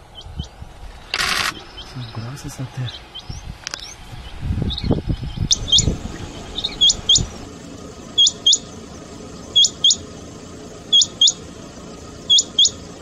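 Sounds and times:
quail calling: 5.5 - 7.5, 8.1 - 10.2, 10.8 - 11.5, 12.2 - 13.0.

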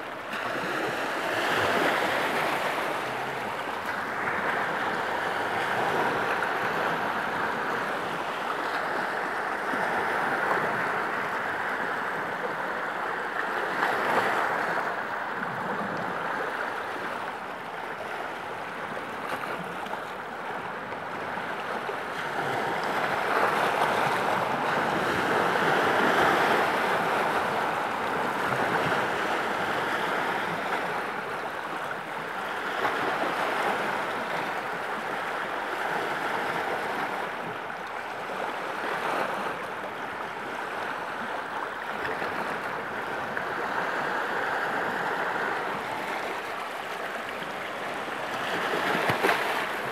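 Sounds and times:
waves breaking on rocks: 40.5 - 49.9.

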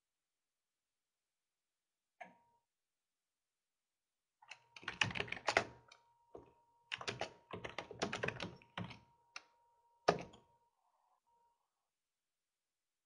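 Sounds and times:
typing on computer keyboard: 4.5 - 6.0, 6.9 - 9.5, 10.1 - 10.4.

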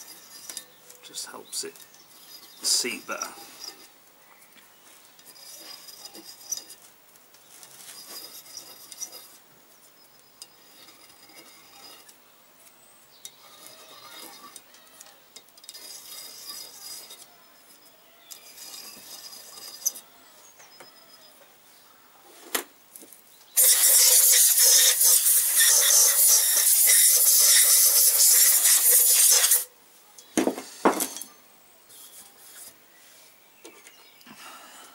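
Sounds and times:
deburring tool scraping metal: 0.0 - 4.0, 5.2 - 6.9, 7.5 - 9.4, 10.4 - 12.2, 13.2 - 20.1, 23.6 - 29.7.

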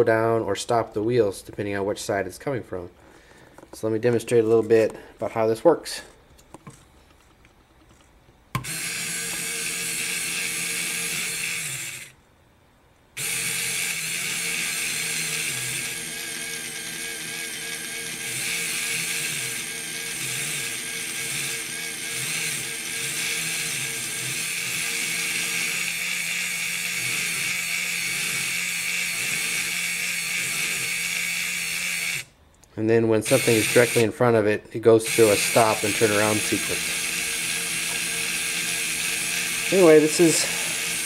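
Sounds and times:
small gear motors whining: 8.5 - 12.2, 13.2 - 32.3, 33.3 - 34.1, 35.0 - 41.0.

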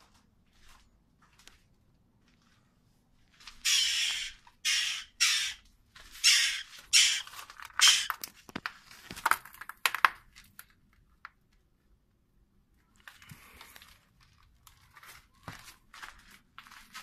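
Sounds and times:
jackdaw nestling harsh calls: 3.6 - 5.6, 6.2 - 8.2.

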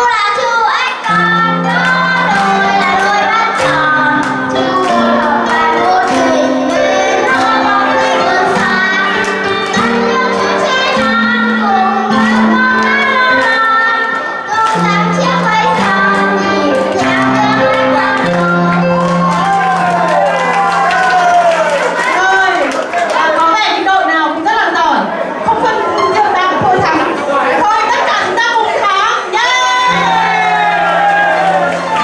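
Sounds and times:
child singing into microphone: 0.0 - 20.3, 28.8 - 32.0.

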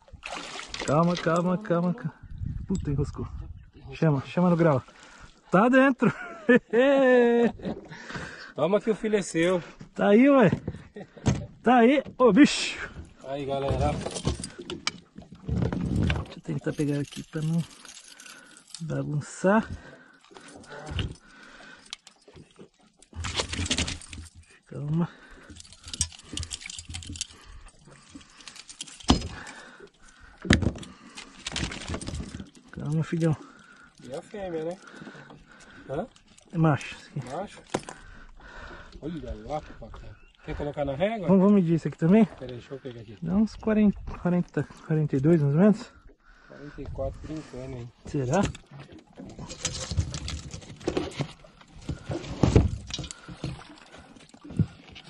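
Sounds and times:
metallic clicks and jingles: 16.1 - 38.2.

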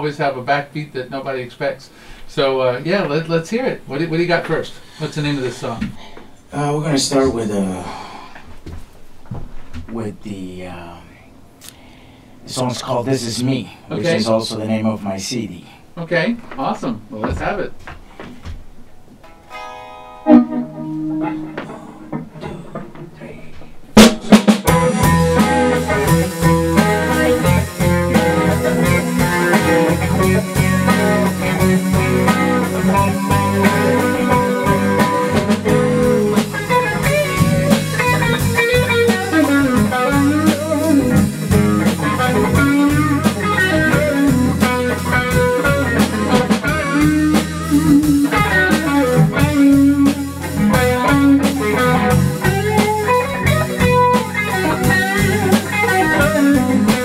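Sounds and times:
blues-rock band playing: 19.2 - 23.2, 23.8 - 57.0
electric guitar: 19.2 - 57.0
drum kit: 20.3 - 57.0.

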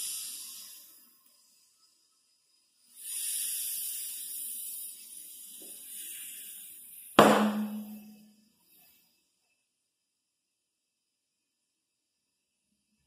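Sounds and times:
compressed air hissing: 0.0 - 8.1.

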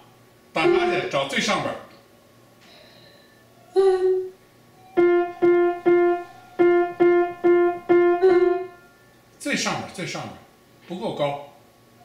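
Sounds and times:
piano note repeated: 5.0 - 8.8.

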